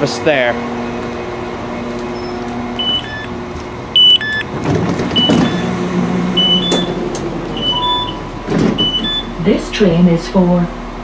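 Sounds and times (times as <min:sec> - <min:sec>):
diesel train engine running: 0:00.0 - 0:11.0
short high door beeps: 0:02.0 - 0:03.4, 0:04.0 - 0:05.8, 0:06.4 - 0:09.4.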